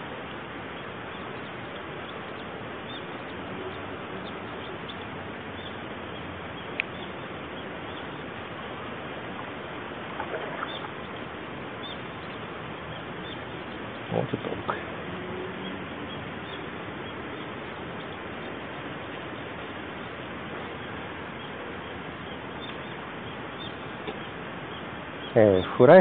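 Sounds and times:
bird chirps: 0.8s - 8.8s, 9.4s - 25.9s
river running over stones: 5.2s - 13.2s.

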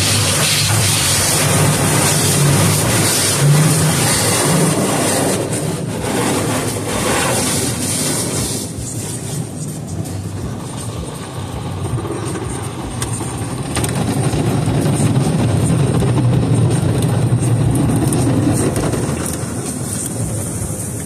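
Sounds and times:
wash strips swishing over car: 0.0s - 14.4s
car wash water spray: 0.0s - 21.0s.

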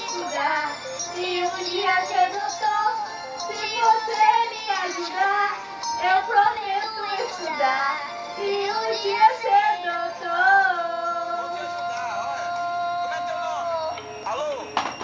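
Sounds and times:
backing music: 0.0s - 15.0s
person singing: 8.4s - 14.1s.

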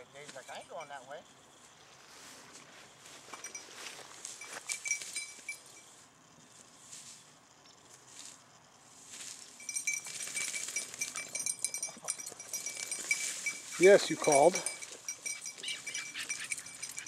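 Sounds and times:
dog collar bell jingling: 0.0s - 1.2s, 3.3s - 5.9s, 9.6s - 17.0s
dry grass rustling: 1.5s - 17.0s.

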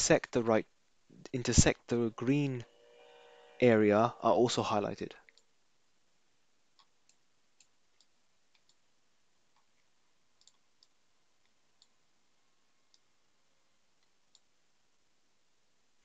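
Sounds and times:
computer mouse clicks: 6.8s - 8.8s, 10.4s - 12.0s.

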